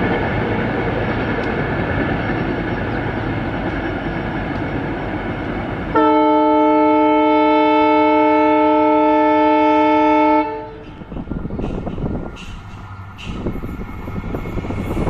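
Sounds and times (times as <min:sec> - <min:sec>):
rumble of approaching train: 0:00.0 - 0:15.0
locomotive air horn blast: 0:06.0 - 0:10.8.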